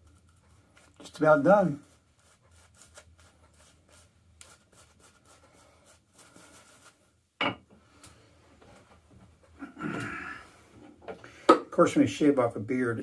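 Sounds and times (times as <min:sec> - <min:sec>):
shaving brush rubbing lather: 0:00.8 - 0:07.0.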